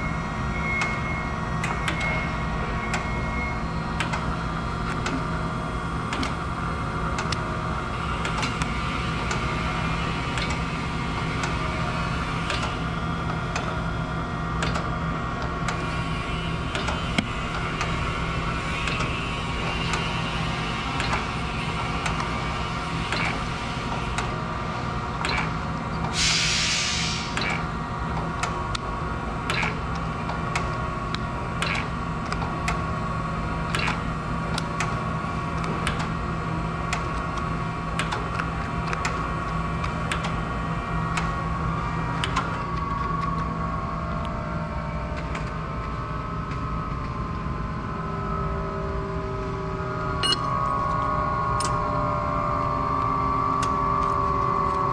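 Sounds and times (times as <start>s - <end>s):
short hiss: 26.2s - 27.4s.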